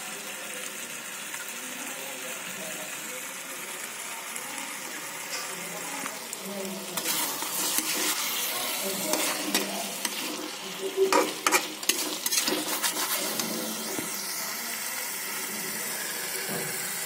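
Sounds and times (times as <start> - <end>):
chicken sizzling in a pan: 0.0 - 17.0
metal spatula scraping a pan: 7.0 - 14.2.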